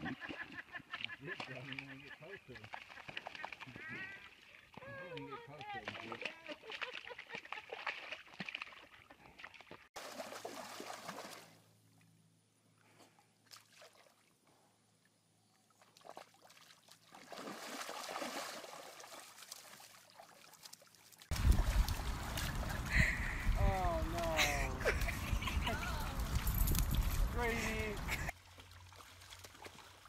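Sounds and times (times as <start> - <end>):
mud sloshing and splattering: 5.7 - 11.6, 15.8 - 25.5, 27.0 - 30.0.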